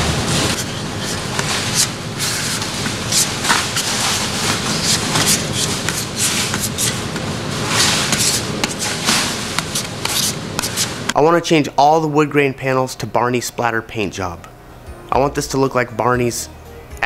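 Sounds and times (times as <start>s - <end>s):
plastic spreader scraping filler: 7.6s - 10.9s.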